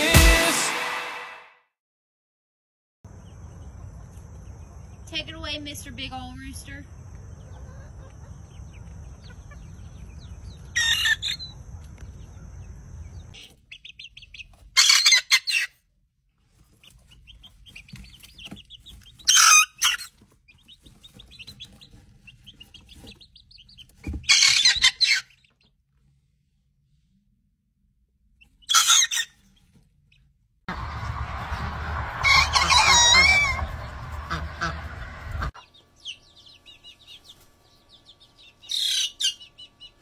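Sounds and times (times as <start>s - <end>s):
chicks peeping and clucking: 3.1s - 15.8s, 16.4s - 25.8s, 28.4s - 40.0s
outdoor background noise: 3.1s - 40.0s
young cockerels crowing: 30.7s - 34.8s
rooster call: 30.7s - 35.5s.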